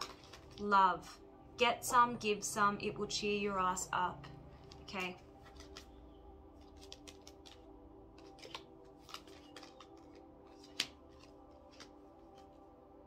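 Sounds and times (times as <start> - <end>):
faint background music: 0.0 - 13.0
cards flicking and tapping: 4.7 - 6.0, 6.6 - 12.6.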